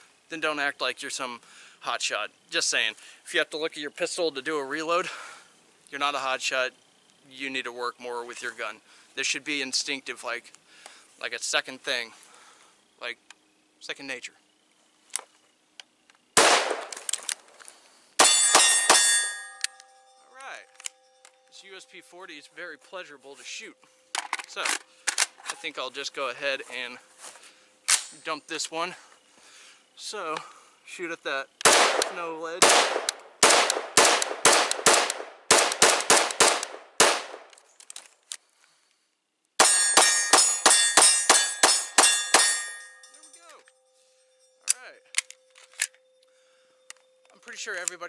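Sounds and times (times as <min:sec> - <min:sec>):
rifle gunshot: 0:16.4 - 0:17.0, 0:31.6 - 0:37.5
quick pistol shots: 0:16.4 - 0:17.1, 0:31.6 - 0:37.5
metallic ringing: 0:18.2 - 0:22.9, 0:39.6 - 0:47.7.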